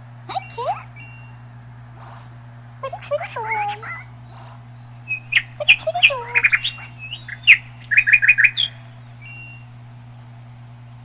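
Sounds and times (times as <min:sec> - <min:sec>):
cockatiel chirping and whistling: 0:01.0 - 0:01.4, 0:05.1 - 0:09.6.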